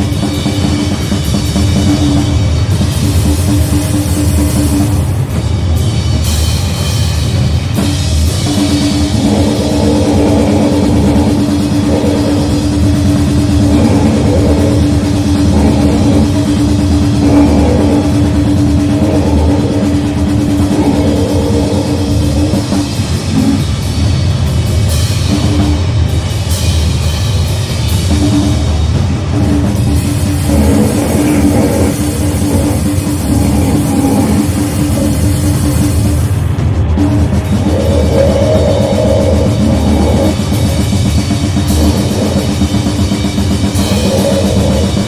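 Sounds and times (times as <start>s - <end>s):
distorted drums: 0.0s - 45.0s
noise grindcore music: 0.0s - 45.0s
steady droning note: 7.9s - 24.4s, 29.6s - 36.4s, 37.0s - 45.0s.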